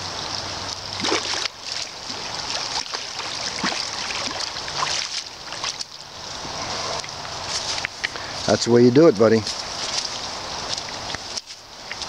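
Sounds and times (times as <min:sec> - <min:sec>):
fish splashing in water: 0:00.0 - 0:08.5
moving water: 0:00.0 - 0:12.0.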